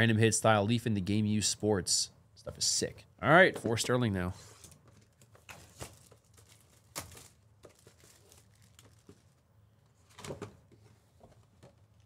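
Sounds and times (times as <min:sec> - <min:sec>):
faint clicks and rustles of packaging: 0:04.4 - 0:12.0.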